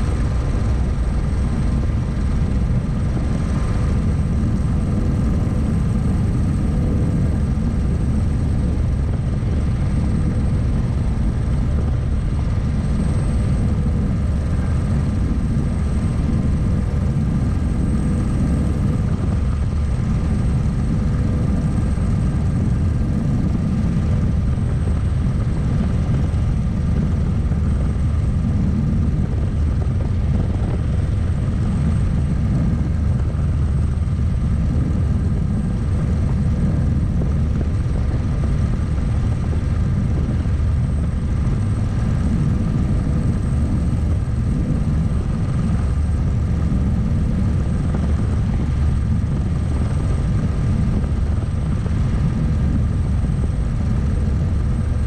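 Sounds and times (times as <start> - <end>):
helicopter rotor rumble: 0.0 - 55.0
turbine whine: 0.0 - 55.0.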